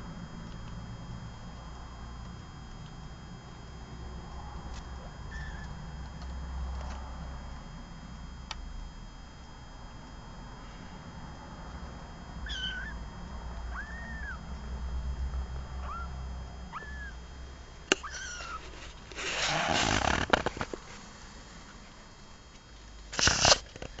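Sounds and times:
small animals squeaking: 5.3s - 5.7s, 12.5s - 13.0s, 13.7s - 14.4s, 15.8s - 17.2s, 18.0s - 18.8s.

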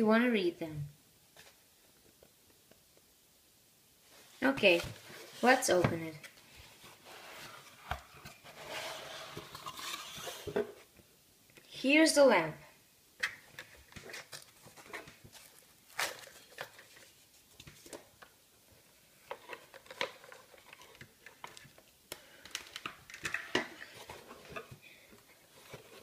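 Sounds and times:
plastic parts clicking and knocking: 19.3s - 24.8s.

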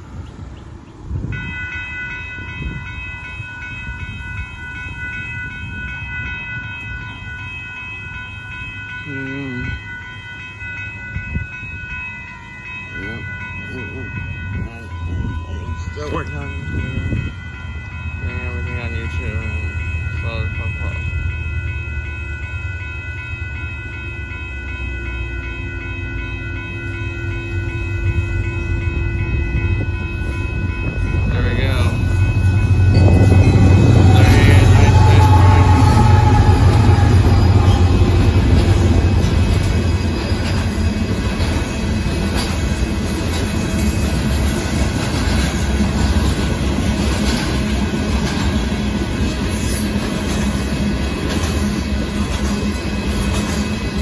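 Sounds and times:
diesel train rumble: 0.0s - 54.0s
railroad crossing bells ringing: 0.0s - 54.0s.

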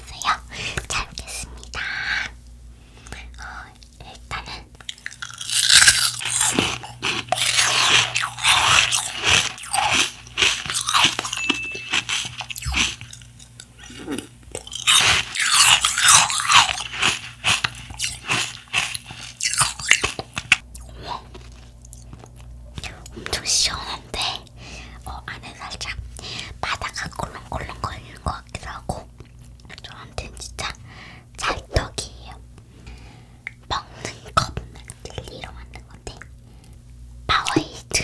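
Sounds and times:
biting and crunching ice: 5.0s - 20.6s.

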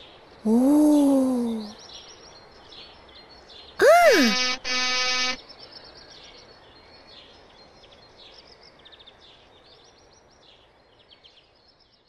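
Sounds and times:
faint birds chirping: 0.0s - 12.0s.

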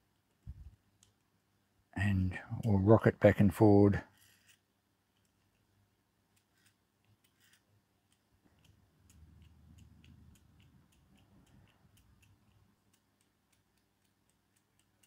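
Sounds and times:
clock ticking: 8.1s - 15.0s.

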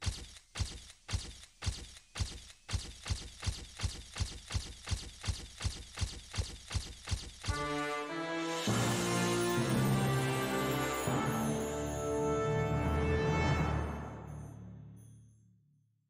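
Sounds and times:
sharp percussive hits: 0.0s - 7.8s.

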